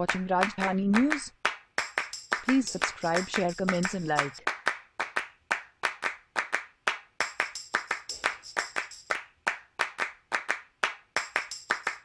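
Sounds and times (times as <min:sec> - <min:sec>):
handclap-like beat: 0:00.0 - 0:12.0.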